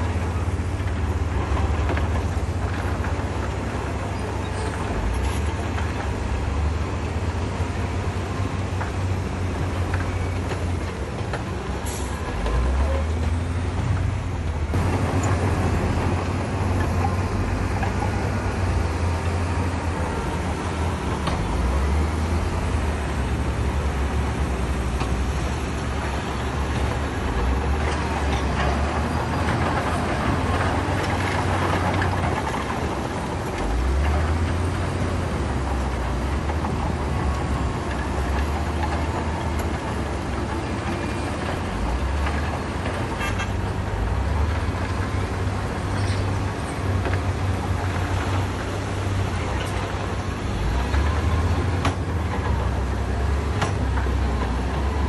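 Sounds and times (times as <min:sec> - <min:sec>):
heavy diesel machinery running: 0:00.0 - 0:55.0.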